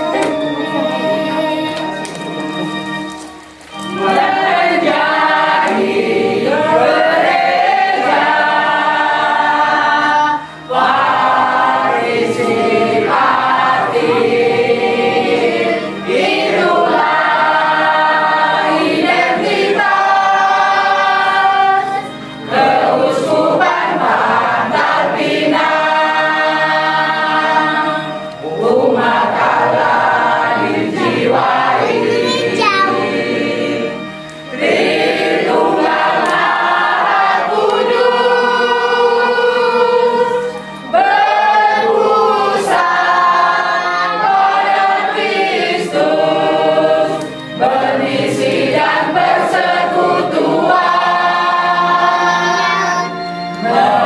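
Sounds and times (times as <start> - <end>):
congregation singing a hymn: 0.0 - 54.0.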